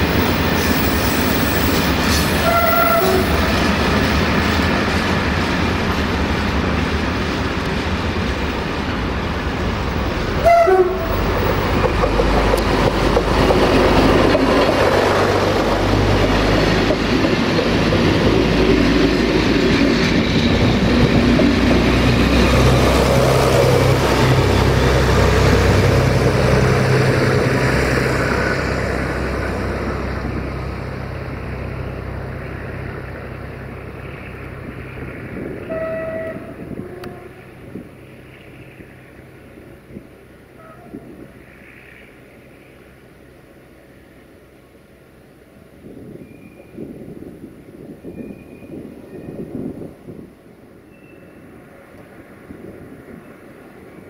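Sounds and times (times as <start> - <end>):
wheels rumbling over rails: 0.0 - 54.0
train horn blast: 2.4 - 3.5, 10.4 - 11.4, 35.6 - 37.5, 40.6 - 41.2.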